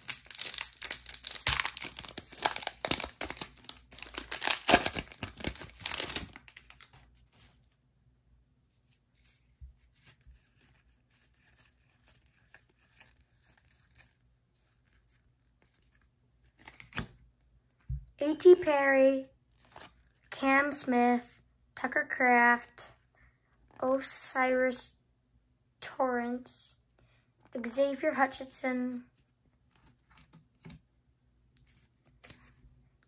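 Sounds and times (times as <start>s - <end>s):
foil wrapper tearing and crinkling: 0.0s - 7.0s.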